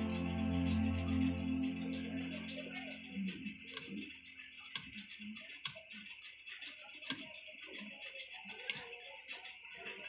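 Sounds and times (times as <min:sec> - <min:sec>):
hand tools clicking on circuit board: 0:04.6 - 0:10.0.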